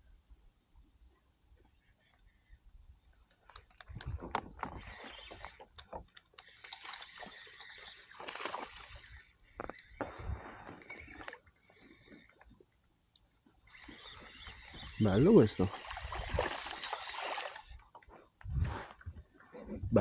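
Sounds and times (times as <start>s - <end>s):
water splashing and sloshing: 3.7s - 19.4s.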